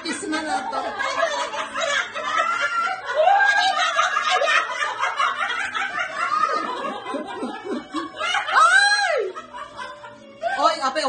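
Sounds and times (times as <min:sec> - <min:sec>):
woman laughing and giggling: 0:00.0 - 0:10.9.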